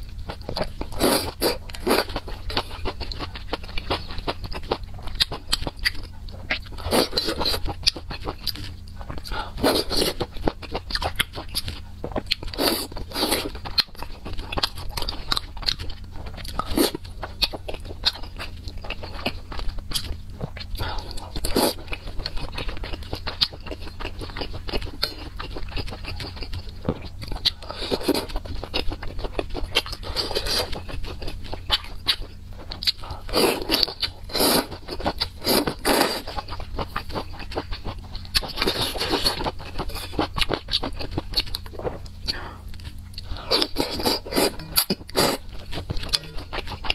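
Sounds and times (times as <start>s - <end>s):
chewing and mouth sounds: 0.0s - 46.9s
steady low hum: 0.0s - 46.9s.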